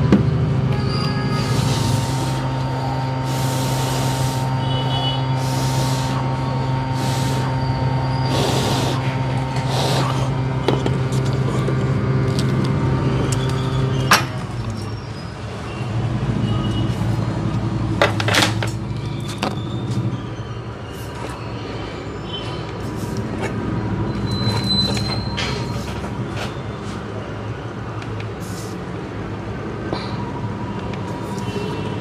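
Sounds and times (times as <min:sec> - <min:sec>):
hot air blower humming: 0:00.6 - 0:13.1
short hisses of air: 0:03.3 - 0:04.6, 0:05.4 - 0:06.3, 0:07.0 - 0:07.6, 0:08.3 - 0:10.3.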